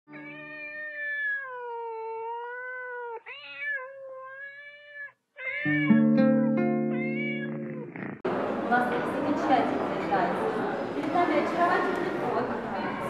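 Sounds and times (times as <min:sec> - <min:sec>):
cat meowing: 0:00.1 - 0:07.9
held musical notes: 0:05.7 - 0:08.2.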